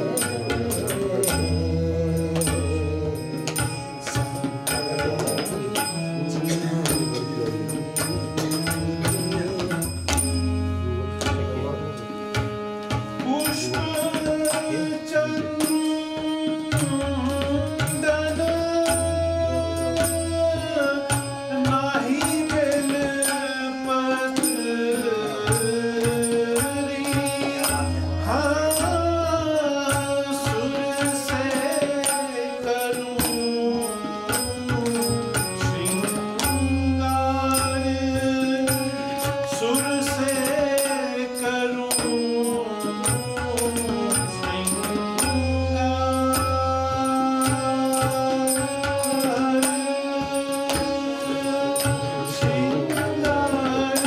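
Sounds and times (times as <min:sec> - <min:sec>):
harmonium: 0:00.0 - 0:54.0
man singing: 0:00.0 - 0:54.0
tabla strokes: 0:00.0 - 0:54.0.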